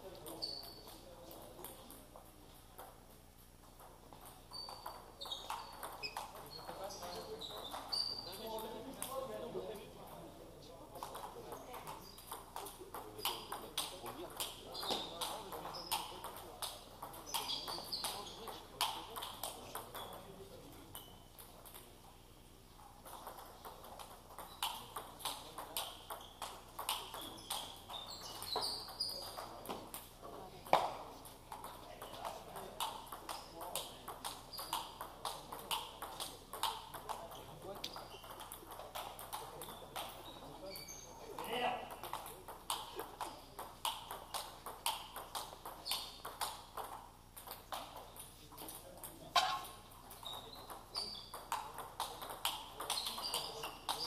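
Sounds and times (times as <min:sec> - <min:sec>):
faint distant ping pong clicks: 0:00.0 - 0:22.2, 0:22.8 - 0:54.0
table tennis ball taps: 0:03.7 - 0:09.3, 0:23.0 - 0:40.2, 0:41.4 - 0:54.0.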